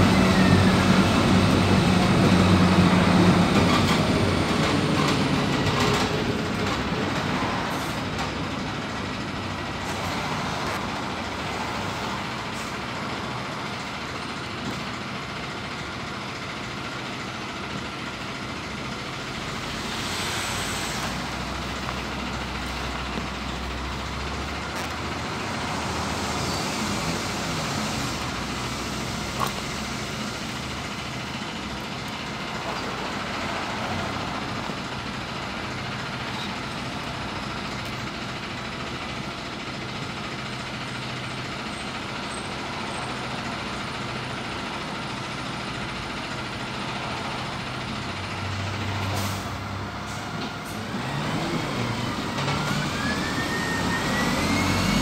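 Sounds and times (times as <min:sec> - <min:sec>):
bus engine and road noise: 0:00.0 - 0:55.0.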